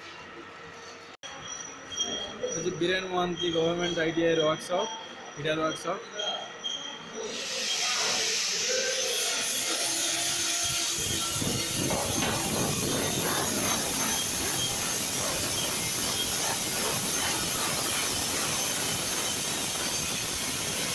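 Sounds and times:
files and hacksaws rasping metal: 6.2s - 20.9s
steady hiss: 11.4s - 20.9s.

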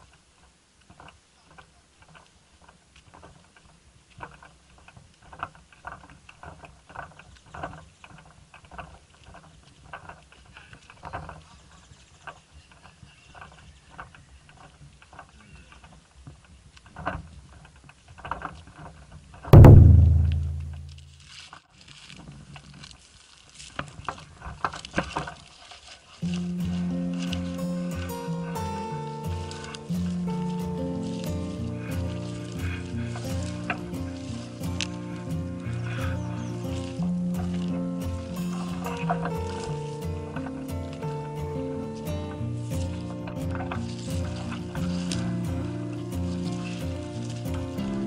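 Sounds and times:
loud hit with ringing tone: 19.6s - 21.1s.

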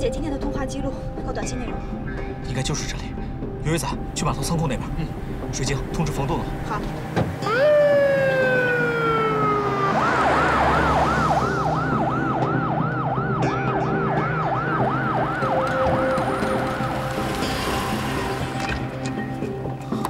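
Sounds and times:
police siren wailing and yelping: 7.4s - 17.0s.

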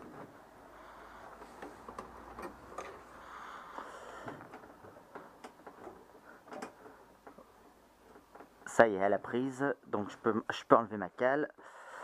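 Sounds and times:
faint metallic clicks and scraping: 1.4s - 8.8s.

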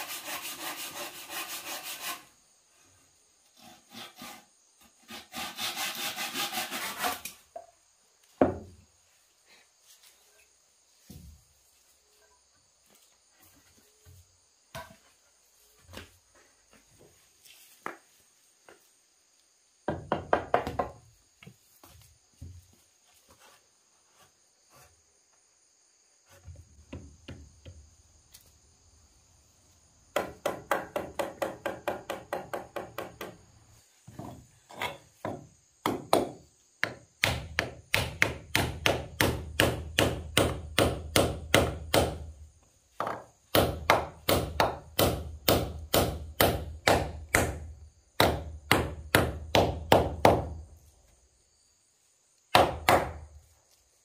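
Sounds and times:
high insect drone: 0.0s - 54.0s
tool striking wood: 35.2s - 42.3s, 43.0s - 50.5s, 52.5s - 53.2s.

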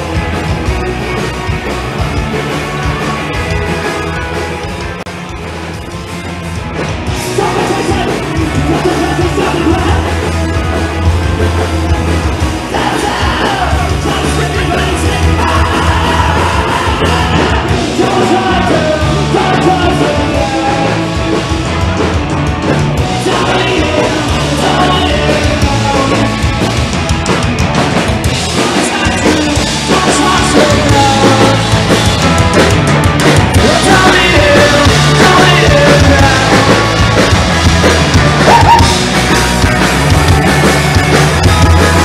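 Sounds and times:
drums: 0.0s - 42.0s
electric guitar: 0.0s - 42.0s
live rock band: 0.0s - 42.0s
person singing: 7.2s - 10.3s, 12.6s - 21.2s, 23.0s - 26.5s, 28.5s - 31.8s, 33.6s - 37.0s.

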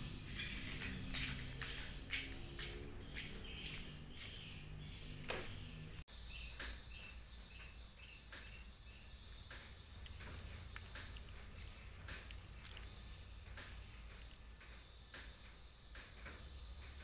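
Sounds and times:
high insect trill: 7.6s - 17.0s
short insect chirps: 8.0s - 17.0s.

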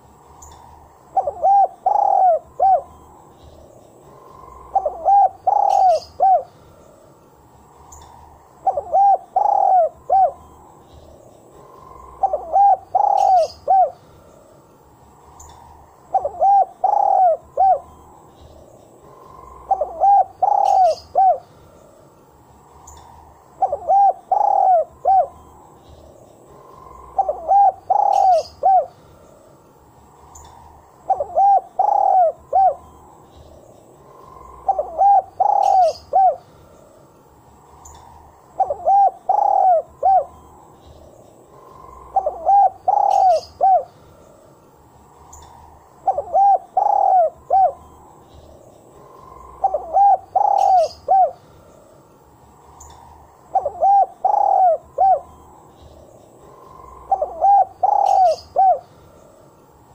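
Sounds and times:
dove cooing: 1.1s - 3.0s, 4.0s - 6.7s, 8.0s - 10.6s, 11.6s - 14.0s, 16.1s - 18.0s, 19.0s - 21.6s, 23.6s - 25.6s, 26.5s - 29.0s, 30.4s - 33.0s, 34.0s - 36.5s, 38.6s - 40.5s, 41.5s - 44.0s, 46.0s - 48.0s, 49.1s - 51.4s, 52.7s - 55.4s, 56.4s - 59.0s.

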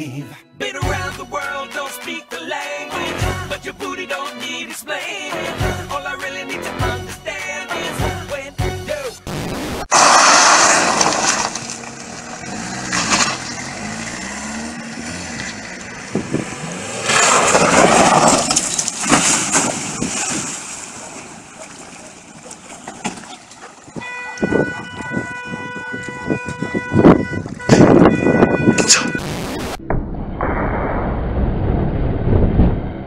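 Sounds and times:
car engine revving: 9.4s - 19.0s
tyres skidding on gravel: 9.9s - 25.4s
steady tone: 27.8s - 33.0s.

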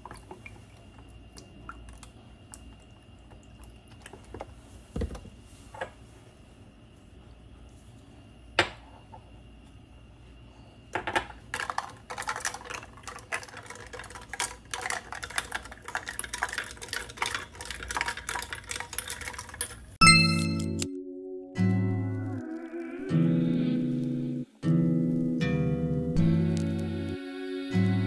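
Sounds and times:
metal straw clinking against glass: 20.0s - 20.9s.

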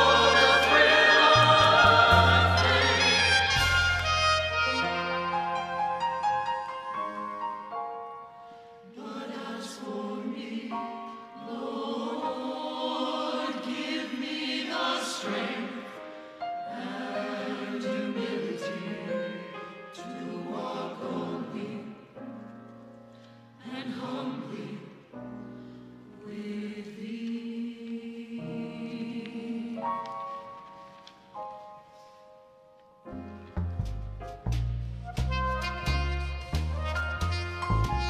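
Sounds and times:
soprano saxophone: 0.0s - 6.3s, 35.1s - 38.0s
church choir singing: 0.0s - 32.2s
piano: 0.0s - 38.0s
upright bass: 33.6s - 38.0s.

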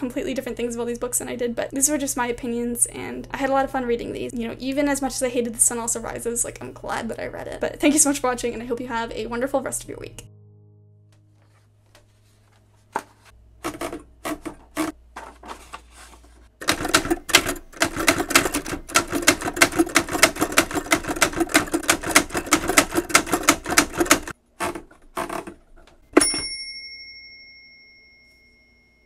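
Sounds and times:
typewriter keystrokes: 16.6s - 24.3s
typewriter bell ding: 26.1s - 29.0s.

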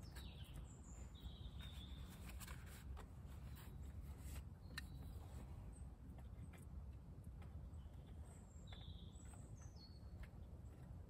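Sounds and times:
hands handling kindling: 1.6s - 5.4s.

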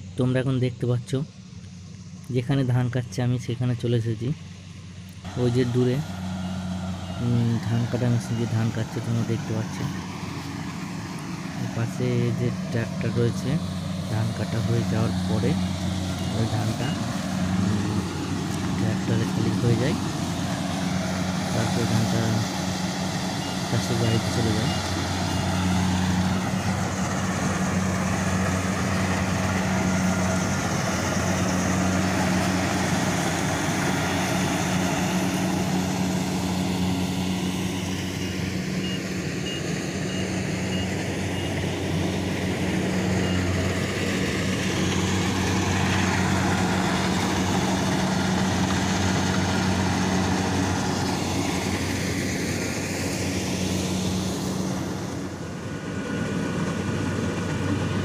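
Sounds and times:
combine harvester diesel engine: 0.0s - 58.0s
high beeps: 16.2s - 17.0s.

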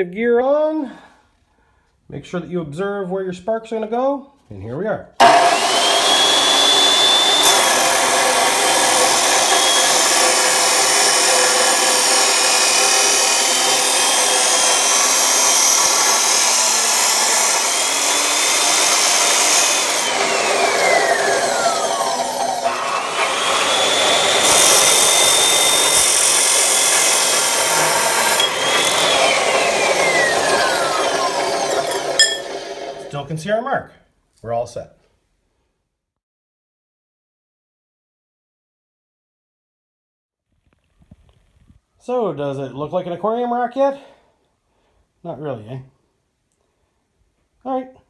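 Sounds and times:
saw motor whine: 5.2s - 33.1s
saw grinding through steel: 5.2s - 33.2s.

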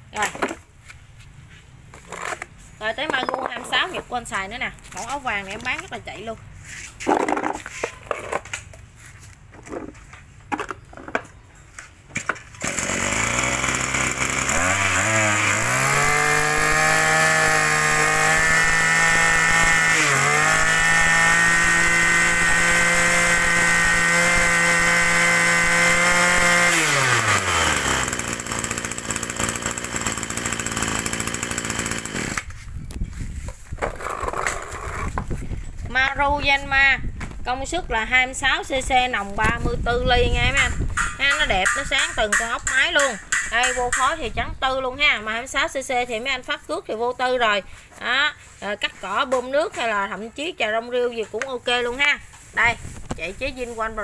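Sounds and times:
brush cutter engine revving: 12.6s - 32.6s.

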